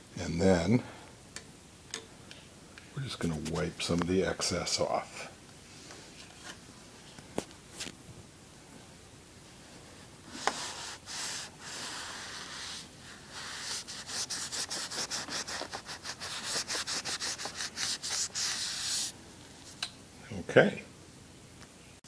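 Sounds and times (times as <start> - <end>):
cloth rubbing: 9.7 - 19.2.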